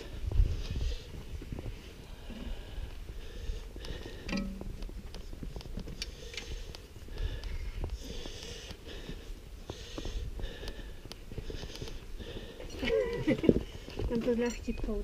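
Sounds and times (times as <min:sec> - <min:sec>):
person breathing hard: 0:00.0 - 0:04.5, 0:05.9 - 0:13.0
wind rumble on microphone: 0:00.0 - 0:09.5.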